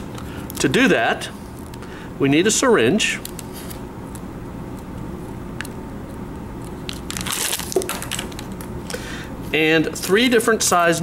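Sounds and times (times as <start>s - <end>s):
steady low hum: 0.0s - 11.0s
packaging crinkling: 6.7s - 9.0s.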